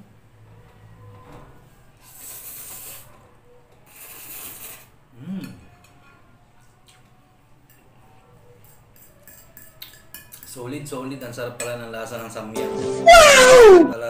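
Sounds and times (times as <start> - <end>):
fork clicking against ceramic bowl: 8.6 - 10.5
person humming briefly: 12.6 - 14.0.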